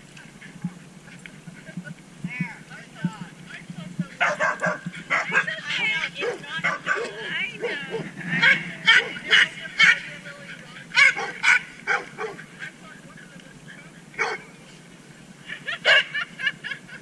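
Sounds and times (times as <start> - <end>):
dog barking and yipping: 4.2 - 10.0, 10.9 - 12.7, 14.2 - 14.4, 15.8 - 16.2.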